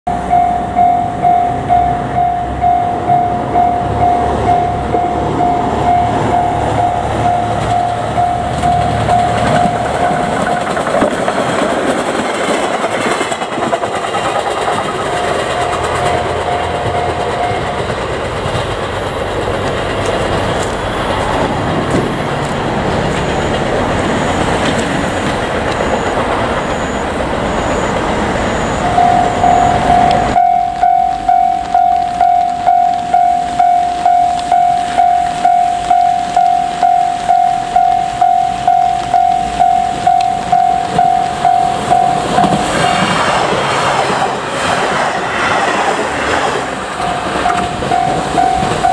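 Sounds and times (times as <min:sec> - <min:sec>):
level crossing alarm ringing: 0:00.1 - 0:10.6, 0:26.7 - 0:42.8, 0:47.0 - 0:48.9
train wheels clattering on rails: 0:00.2 - 0:48.9.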